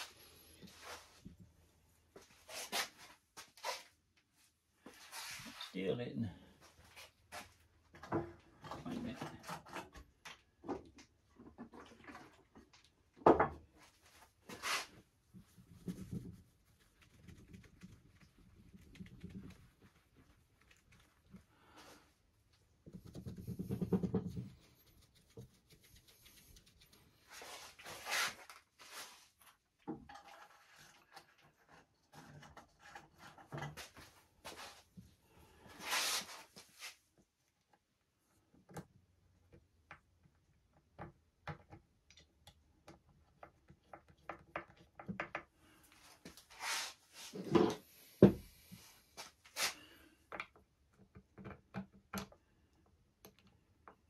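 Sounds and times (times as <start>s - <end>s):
cloth rubbing on wooden board: 23.2s - 29.2s.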